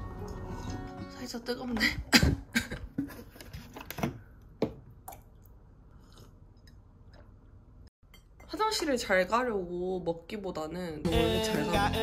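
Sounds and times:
person sipping and gulping: 4.9 - 7.8.

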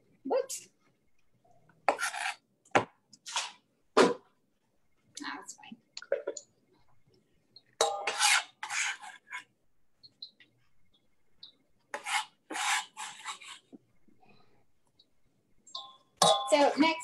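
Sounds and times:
knife scraping cutting board: 1.9 - 2.4, 3.2 - 3.6, 8.0 - 9.5, 11.9 - 13.7.

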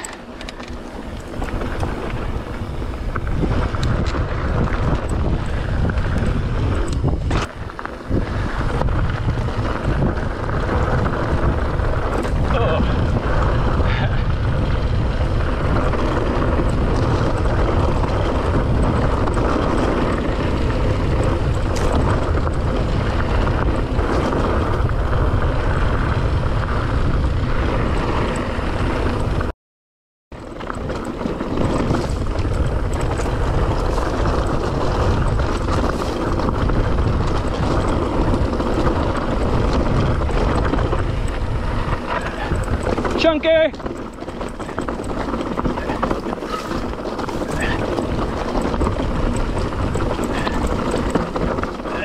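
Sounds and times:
bike rattling over rocks: 0.0 - 29.5, 30.4 - 52.0
wind rumbling over microphone: 0.0 - 29.5, 30.3 - 52.0
tyres crunching on gravel: 0.1 - 14.1, 30.4 - 52.0.

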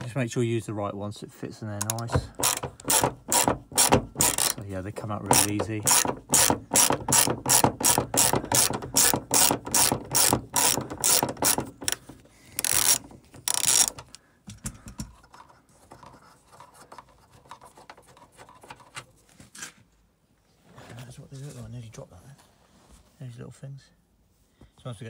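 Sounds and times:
ratchet clicking: 1.8 - 4.6, 5.3 - 14.2.

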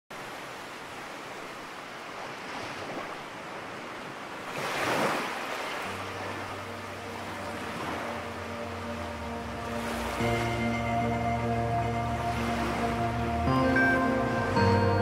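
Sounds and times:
ocean surf washing: 0.1 - 15.0
soft background music: 5.4 - 15.0.

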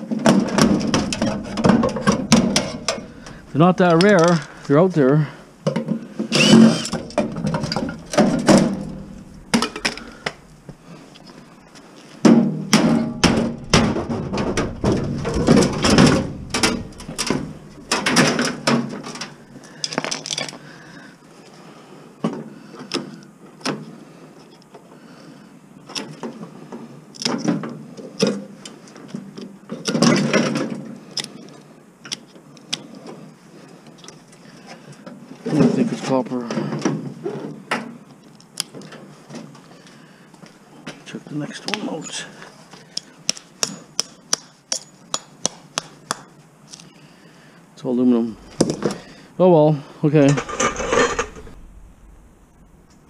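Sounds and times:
scrap metal clanking and rattling: 0.0 - 10.7, 12.3 - 19.4, 50.1 - 52.1.

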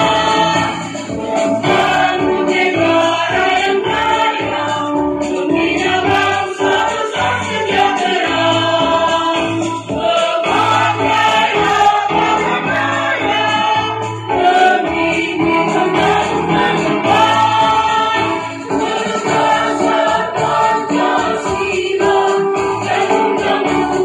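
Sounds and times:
mixed choir singing in harmony: 0.0 - 24.0.

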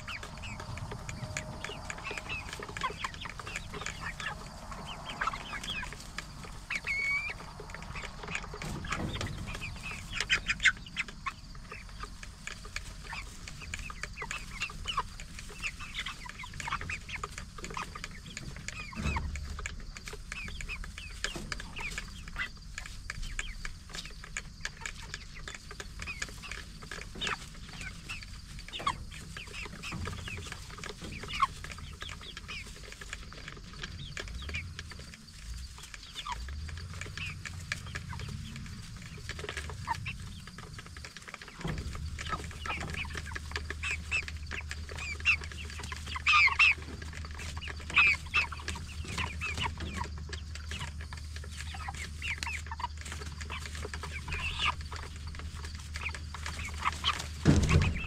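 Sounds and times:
chickens clucking and chirping: 0.0 - 58.0.

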